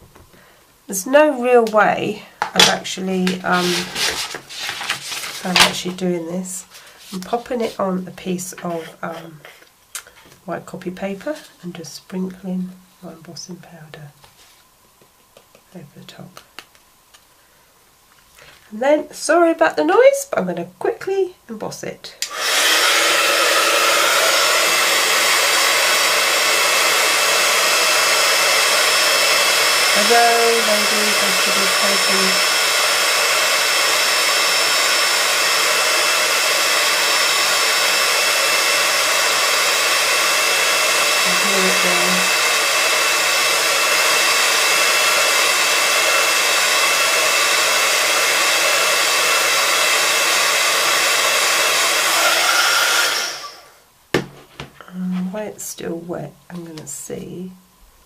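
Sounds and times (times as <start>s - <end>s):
heat gun blowing air: 2.4s - 7.8s, 22.2s - 53.8s.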